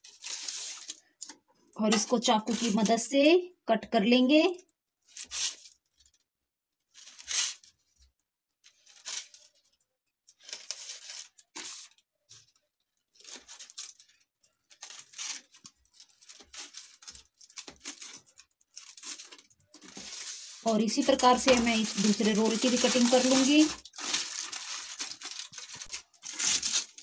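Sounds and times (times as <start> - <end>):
knife slicing on crinkled foil: 0.0 - 1.0, 1.9 - 3.0, 5.1 - 5.8, 6.9 - 7.7, 8.7 - 9.5, 10.4 - 12.0, 13.2 - 27.0.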